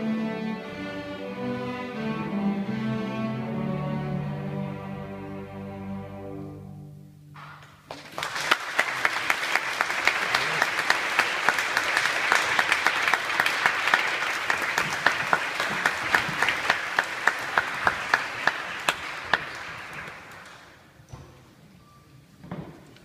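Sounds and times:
hands clapping close by: 7.4 - 20.8
audience applauding: 7.9 - 20.8.

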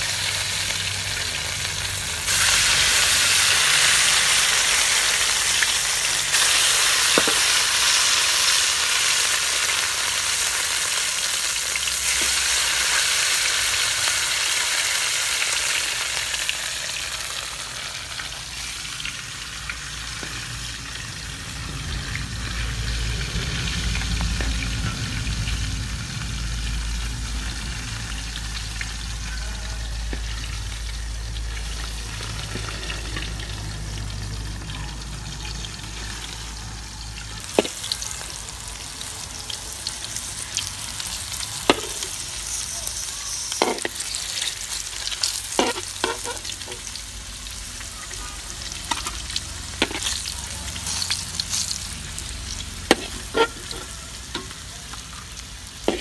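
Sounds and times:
fish sizzling in hot oil: 0.0 - 56.0
spatula knocking and scraping wok: 41.6 - 42.2, 43.6 - 44.0, 45.5 - 46.9, 49.8 - 50.3, 52.8 - 54.6.

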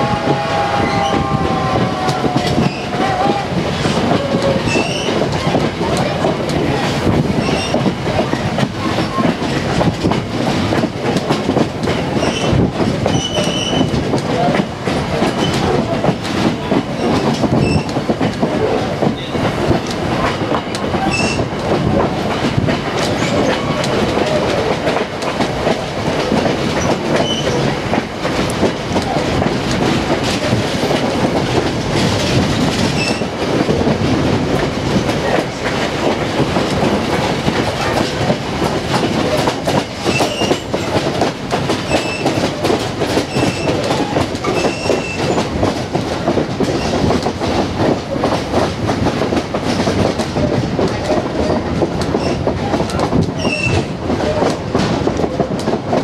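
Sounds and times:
train coach rumbling on track: 0.0 - 56.0
wheel squeals: 40.1 - 40.7, 43.3 - 45.4, 53.4 - 53.8.

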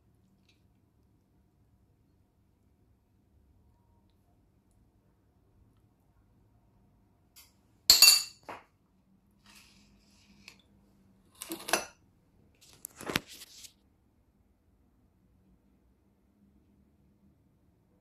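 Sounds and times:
cutlery clinking on plate: 7.9 - 8.6.

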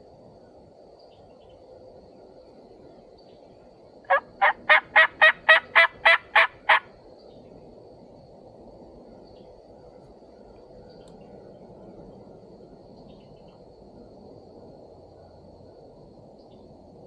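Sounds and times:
wild turkey yelping: 4.1 - 6.9.

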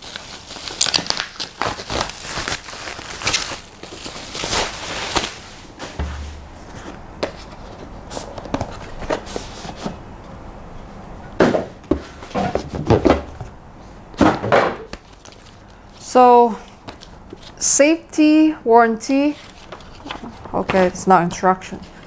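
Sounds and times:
bubble wrap crinkling: 0.0 - 7.6
cardboard box knocked and scraped: 6.0 - 7.5
papers rustling: 14.9 - 16.0, 19.2 - 21.1.

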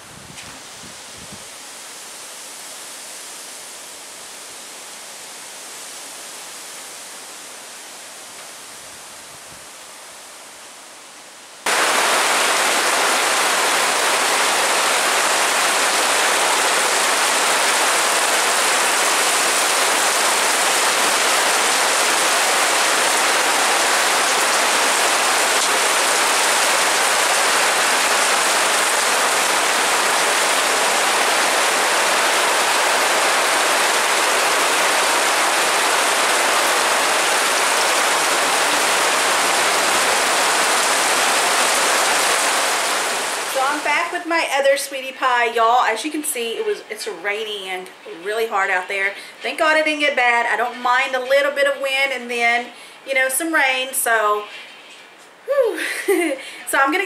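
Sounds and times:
heavy rain on a metal roof: 0.0 - 47.2
quiet steady hiss: 43.2 - 57.0.

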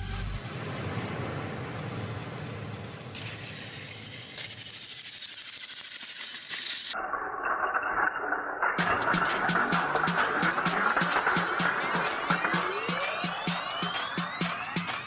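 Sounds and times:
toy train motor whirring and clicking: 2.8 - 7.0.

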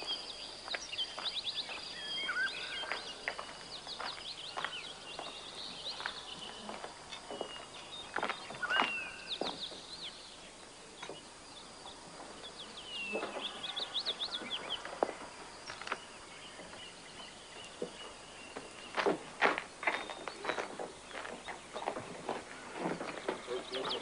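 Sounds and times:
birds chirping: 0.0 - 24.0
footsteps: 2.8 - 9.9, 12.0 - 24.0.

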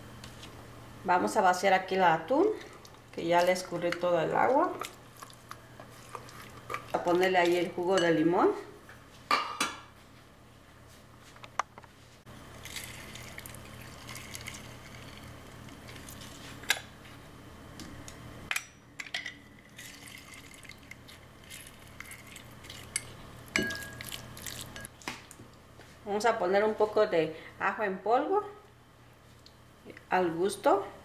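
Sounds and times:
steady low hum: 0.0 - 31.0
juice trickling and dripping: 12.5 - 16.6, 19.6 - 25.0.

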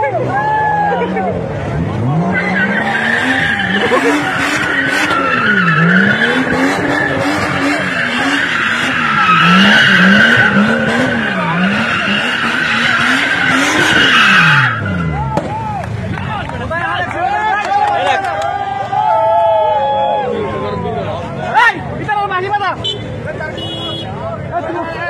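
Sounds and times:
car engine revving: 1.0 - 16.8
tyres screeching: 2.0 - 15.2.

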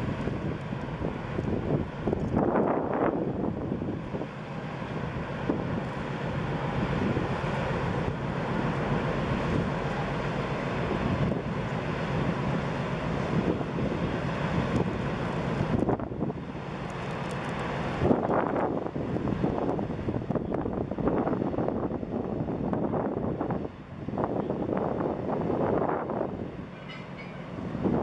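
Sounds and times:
wind buffeting microphone: 0.0 - 28.0.

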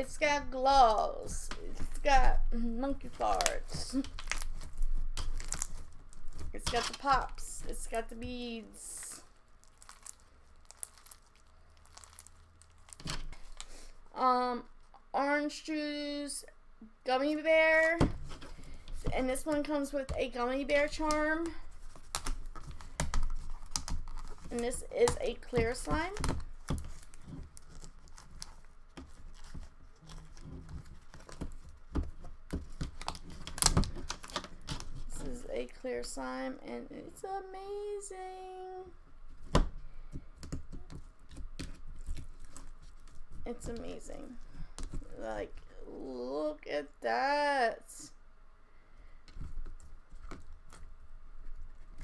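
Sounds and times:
slime crackling and popping: 3.0 - 8.0, 8.8 - 13.8, 20.9 - 35.1.

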